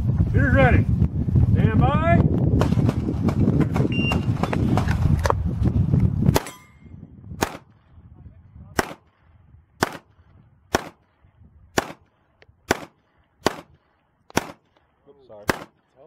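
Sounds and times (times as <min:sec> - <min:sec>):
pistol shots at steel plates: 0:06.3 - 0:07.7, 0:09.8 - 0:10.1, 0:10.7 - 0:11.0, 0:11.8 - 0:12.1, 0:12.7 - 0:14.7, 0:15.4 - 0:15.8.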